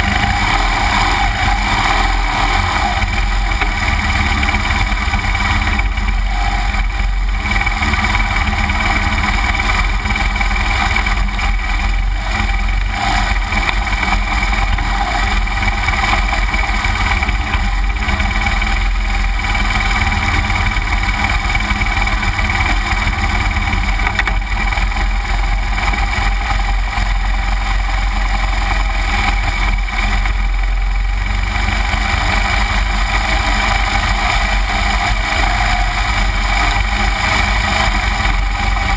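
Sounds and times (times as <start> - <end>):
motorcycle engine running: 0.0 - 38.9.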